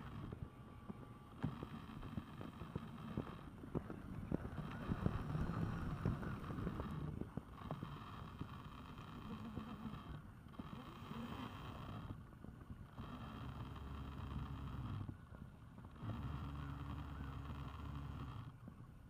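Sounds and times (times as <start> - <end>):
wind rumbling on microphone: 1.9 - 8.6.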